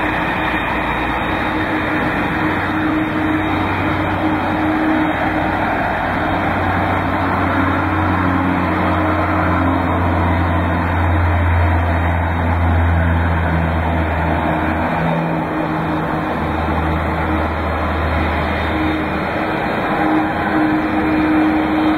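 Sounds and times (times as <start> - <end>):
jet engine drone taxiing: 0.0 - 21.9.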